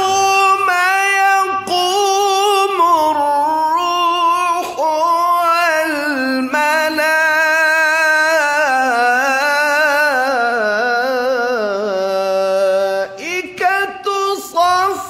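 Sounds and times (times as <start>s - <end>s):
man reciting melodically: 0.0s - 15.0s.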